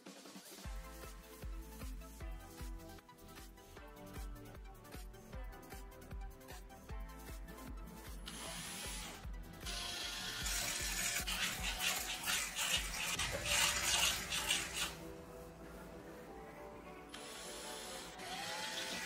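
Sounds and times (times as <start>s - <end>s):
background music with steady beat: 0.0s - 19.0s
drill sanding plastic: 8.3s - 15.0s, 17.2s - 19.0s.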